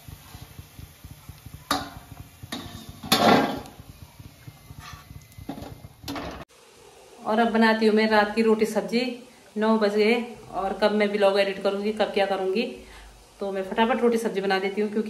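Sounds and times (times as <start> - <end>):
low steady rumble: 0.0 - 6.5
metal skimmer clanking on pan: 1.3 - 3.9.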